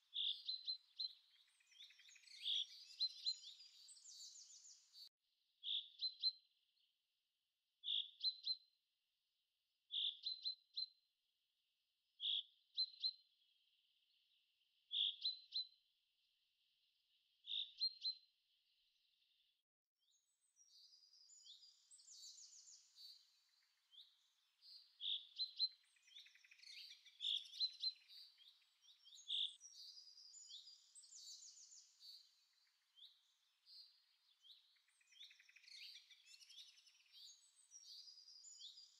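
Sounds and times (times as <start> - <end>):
birds calling and trilling: 20.5 - 38.9.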